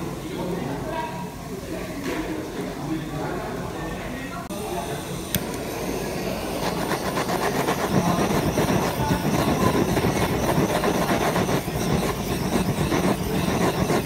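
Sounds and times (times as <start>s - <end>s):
kitchen torch flame hissing: 4.4s - 14.0s
torch click: 5.3s - 14.0s.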